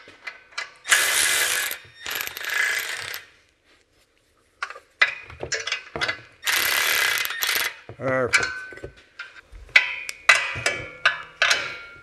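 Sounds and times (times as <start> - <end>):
cordless ratchet running: 0.9 - 3.2, 6.4 - 7.8.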